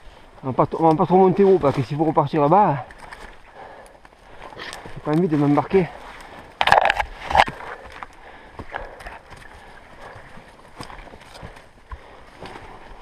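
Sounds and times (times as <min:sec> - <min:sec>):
footsteps on stony ground: 0:00.4 - 0:13.0
stones and twigs clicking: 0:02.7 - 0:12.6.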